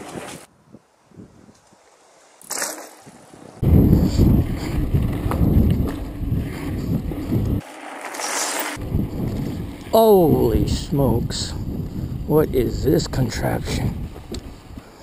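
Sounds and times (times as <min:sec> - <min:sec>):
wind buffeting microphone: 0:03.4 - 0:07.6, 0:08.8 - 0:15.0.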